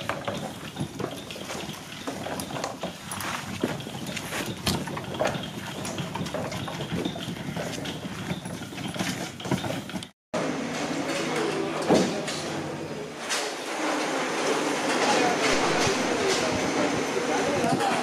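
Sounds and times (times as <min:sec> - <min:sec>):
scattered knocks and rattles: 0:00.0 - 0:10.2
faint voices: 0:10.8 - 0:18.0.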